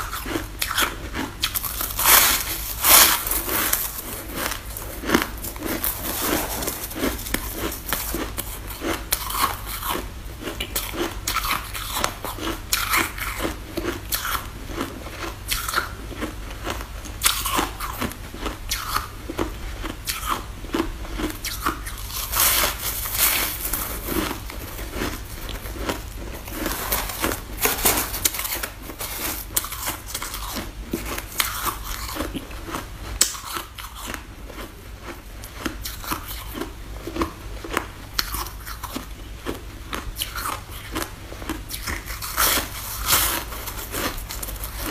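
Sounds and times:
snow ice crunching in chewing: 0.3 - 10.0.

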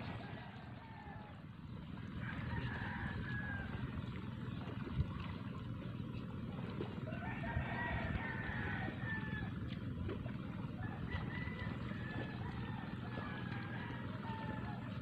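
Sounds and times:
steady low rumble: 0.0 - 15.0
distant rooster crowing: 0.1 - 1.4, 2.2 - 4.0, 7.0 - 9.8, 10.8 - 15.0.

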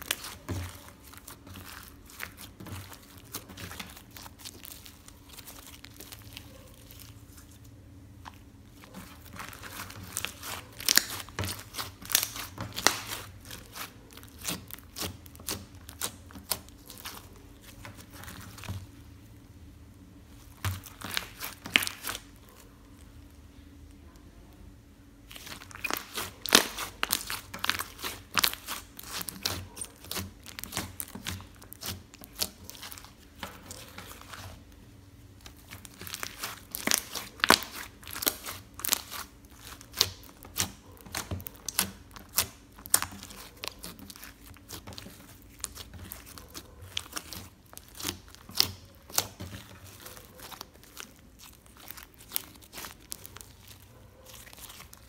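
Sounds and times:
slime clicking and popping: 35.5 - 54.9.

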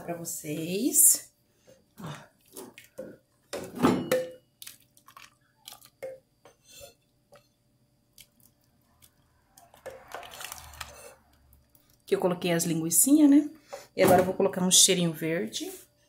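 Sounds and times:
wet squelching of beans: 4.6 - 6.0, 8.1 - 12.2.

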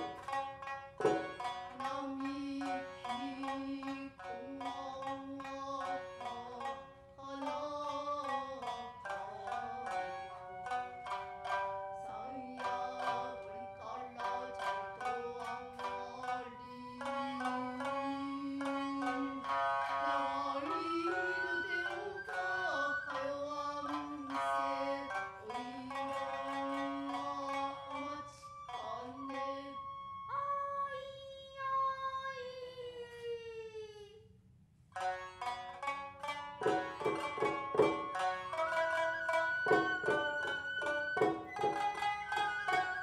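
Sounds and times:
shamisen plucked sharply: 0.0 - 29.5, 35.0 - 43.0
woman singing long wavering notes: 1.7 - 33.9.

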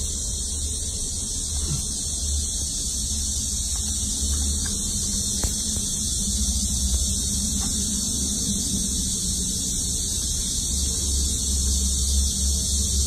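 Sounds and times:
high-pitched hiss: 0.0 - 13.0
low hum: 0.0 - 13.0.

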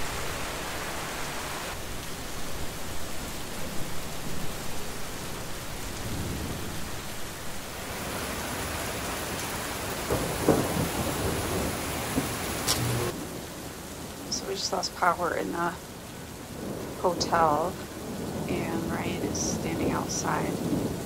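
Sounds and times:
heavy rain pouring: 0.0 - 21.0
thunder rumbling: 1.7 - 13.5, 16.5 - 21.0.

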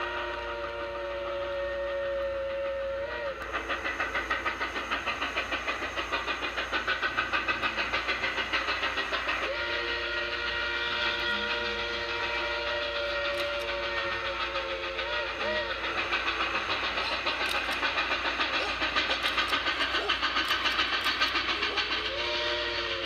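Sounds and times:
steam locomotive whistle: 0.0 - 4.2, 9.1 - 23.0
rapid exhaust chuffs: 3.2 - 23.0.

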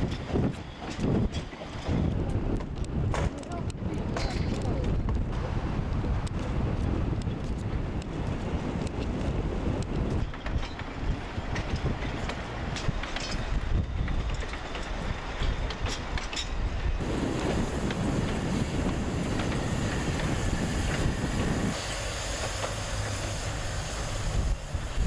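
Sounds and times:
wind rumbling on microphone: 0.0 - 25.0
steam hissing from locomotive: 17.0 - 25.0.

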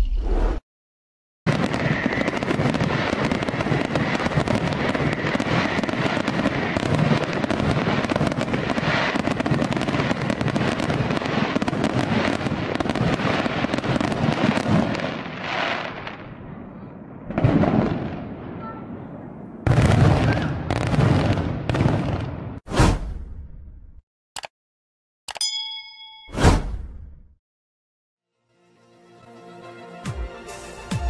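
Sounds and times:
loud firework burst: 1.5 - 15.8
fireworks crackling and popping: 1.5 - 16.4, 19.7 - 22.6.

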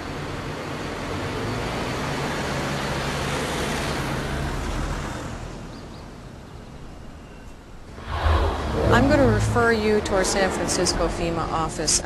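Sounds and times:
car driving past: 7.9 - 11.2.

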